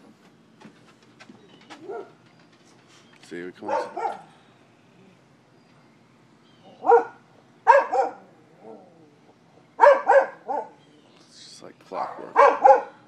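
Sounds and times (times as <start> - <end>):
dog barking: 1.8 - 2.2, 3.6 - 4.3, 6.8 - 8.8, 9.8 - 10.8, 12.0 - 13.0.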